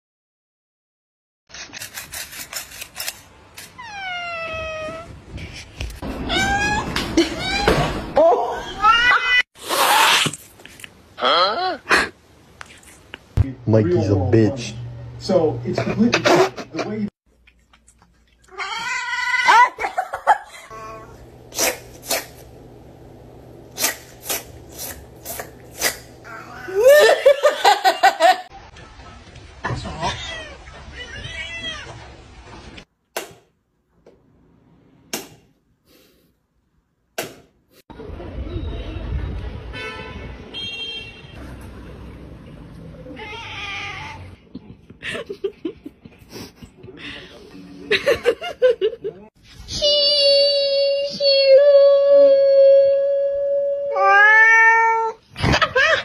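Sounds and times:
cat meowing: 6.2s - 7.7s, 43.1s - 44.3s, 53.9s - 55.2s
cat sneezing: 21.5s - 22.4s, 23.8s - 26.1s.

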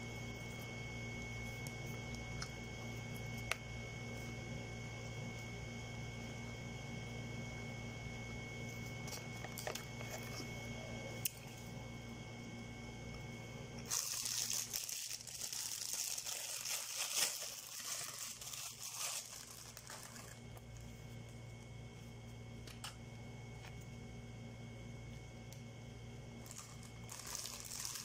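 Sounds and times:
low hum: 0.0s - 28.0s
plastic packaging crinkling: 13.8s - 21.5s, 26.4s - 28.0s.

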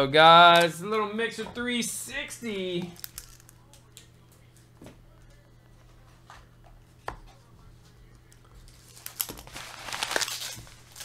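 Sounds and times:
paper rustling and crinkling: 8.6s - 11.0s.

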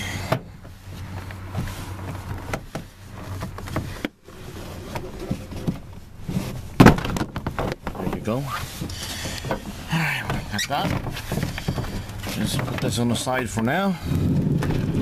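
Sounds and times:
plastic trim creaking and clicking: 0.0s - 15.0s.

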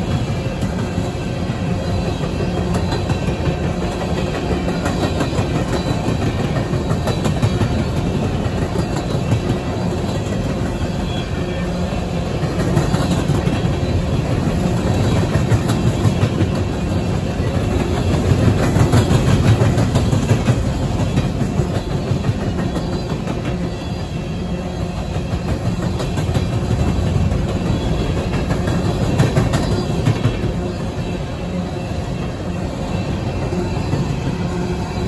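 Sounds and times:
clickety-clack over rail joints: 0.0s - 35.0s
rumble of train wheels on rail: 0.0s - 35.0s.

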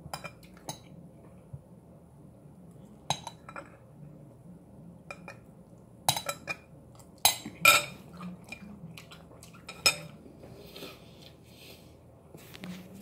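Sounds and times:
utensil clinking against bowl: 6.1s - 8.6s.

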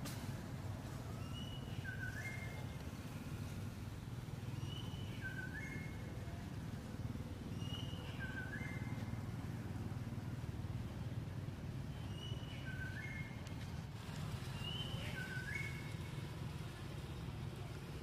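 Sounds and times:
bird whistling phrase: 14.6s - 15.9s.

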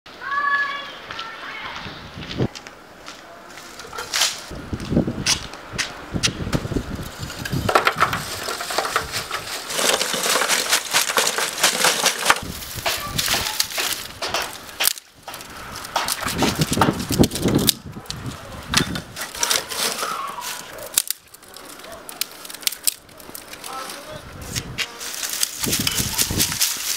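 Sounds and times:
dry branches snapping: 3.6s - 4.5s, 5.2s - 26.9s
charcoal clattering into metal grill: 7.0s - 17.8s, 18.6s - 24.0s.

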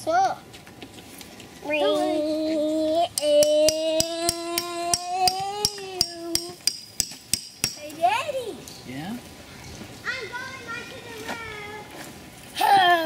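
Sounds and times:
hammer driving metal tent stake: 3.2s - 7.8s.

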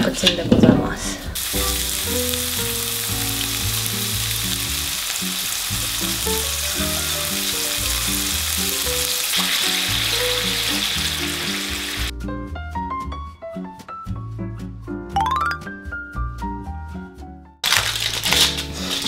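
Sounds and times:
soft background music: 0.8s - 5.0s, 10.0s - 17.5s
patties sizzling in oil: 1.4s - 12.1s, 17.6s - 19.0s
sauce poured into hot pan: 1.4s - 12.1s.

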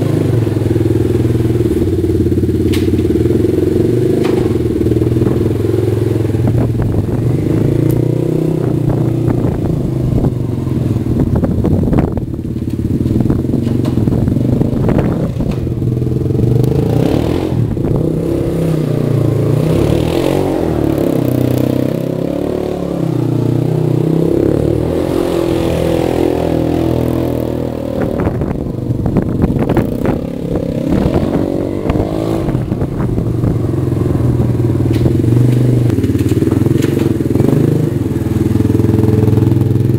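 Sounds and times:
quad engine revving: 0.0s - 12.2s, 12.8s - 39.9s.

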